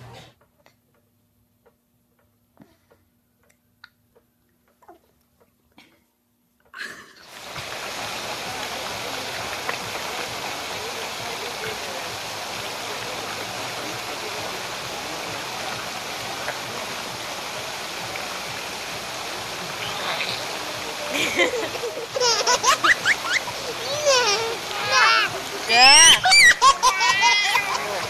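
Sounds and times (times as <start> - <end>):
steady rushing noise: 7.4 - 25.7.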